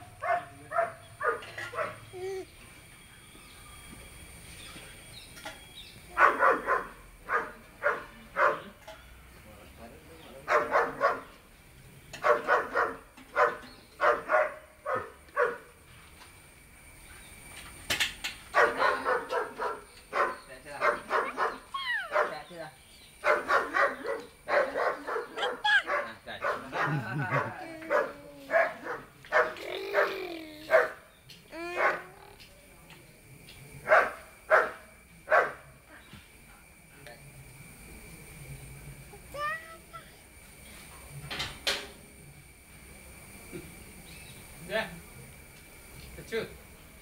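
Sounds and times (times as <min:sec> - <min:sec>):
dog barking: 0:00.0 - 0:02.1, 0:06.2 - 0:08.8, 0:10.4 - 0:11.4, 0:12.2 - 0:15.7, 0:18.5 - 0:22.5, 0:23.2 - 0:31.0, 0:31.7 - 0:32.1, 0:33.8 - 0:35.7.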